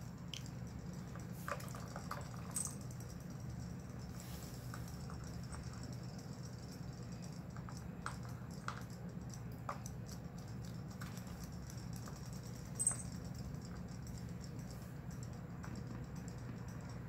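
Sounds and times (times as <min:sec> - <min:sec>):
light ticks and water dabs: 0:00.0 - 0:17.0
steady low hum: 0:00.0 - 0:17.0.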